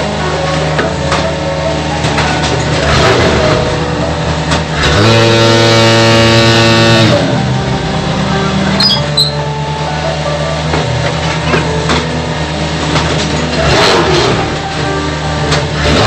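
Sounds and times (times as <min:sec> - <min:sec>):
block machine humming: 0:00.0 - 0:16.0
vibration motors buzzing: 0:00.0 - 0:16.0
short high squeaks: 0:08.7 - 0:09.5.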